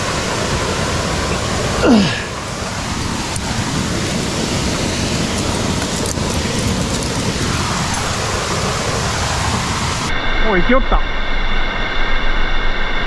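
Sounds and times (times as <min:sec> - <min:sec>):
waterfall roaring: 0:00.0 - 0:10.7.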